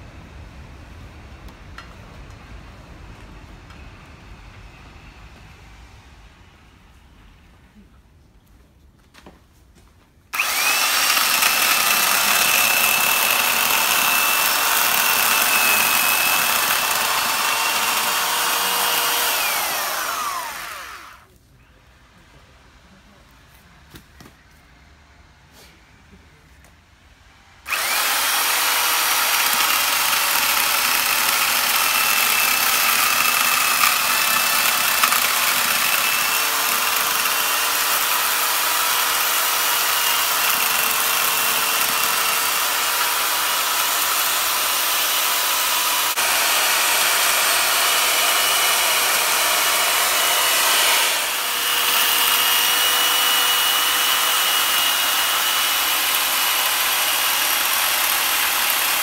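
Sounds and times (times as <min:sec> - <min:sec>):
electric chainsaw cutting wood: 0:10.4 - 0:21.3, 0:27.7 - 0:59.0.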